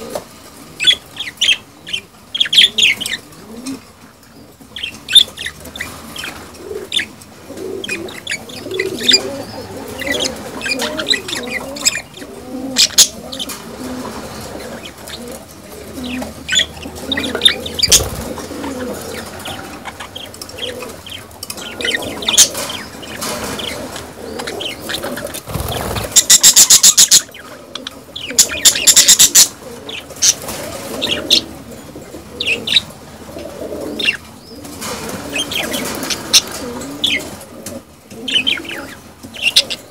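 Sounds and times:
budgerigars chirping: 0.8s - 3.2s, 4.8s - 7.1s, 7.8s - 15.4s, 16.0s - 30.4s
low wavering cooing: 6.6s - 23.0s.

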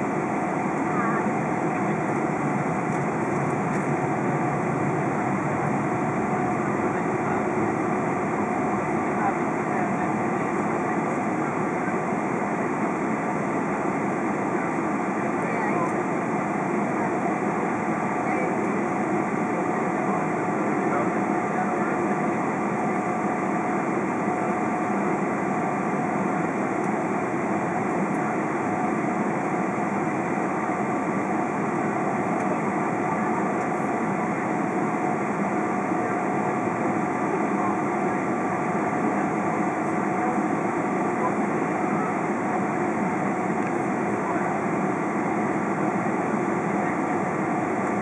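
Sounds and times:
faint steady whine: 0.0s - 48.0s
jet engines rushing hum: 0.0s - 48.0s.

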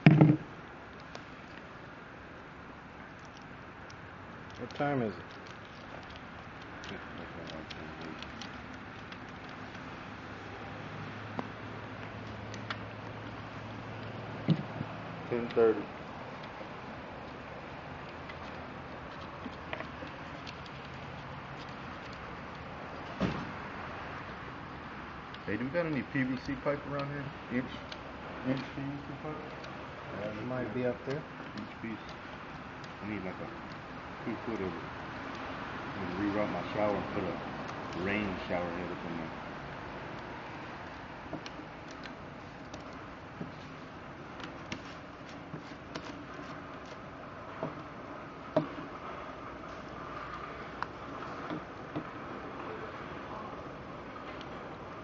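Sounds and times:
sharp knock: 0.0s - 0.5s
tape crinkling and tapping: 0.0s - 1.7s, 3.0s - 24.4s, 25.2s - 49.0s
steady low hiss: 0.0s - 55.0s
foil tape clicks and crinkles: 3.1s - 10.2s, 18.0s - 23.1s.

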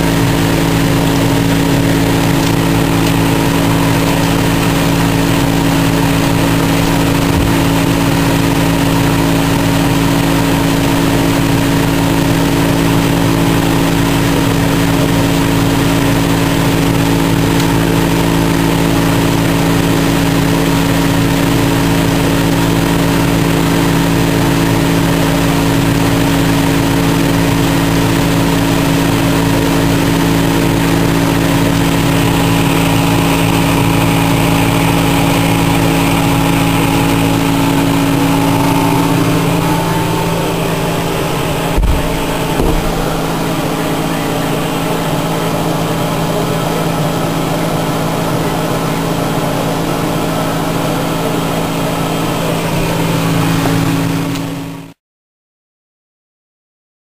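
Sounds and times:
fan motor humming: 0.0s - 54.7s
air rushing from outlet: 29.6s - 46.9s.

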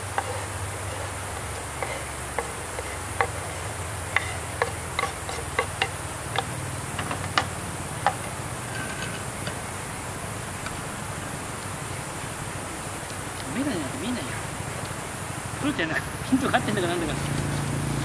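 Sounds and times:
garlic frying pops and crackles: 0.0s - 9.8s
gas burner hiss and hum: 0.0s - 18.0s.

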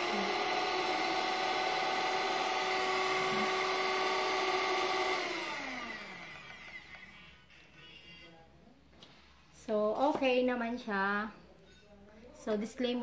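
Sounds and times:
electric hand mixer motor whine: 0.0s - 7.2s.

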